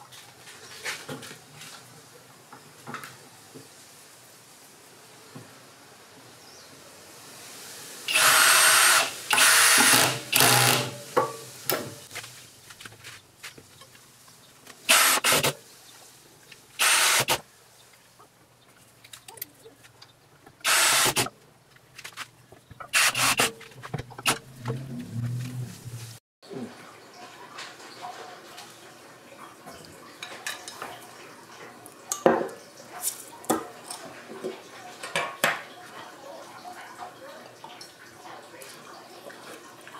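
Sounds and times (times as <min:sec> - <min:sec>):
cordless drill whine: 0:08.1 - 0:10.9, 0:14.9 - 0:15.5, 0:16.8 - 0:17.4, 0:20.7 - 0:21.3.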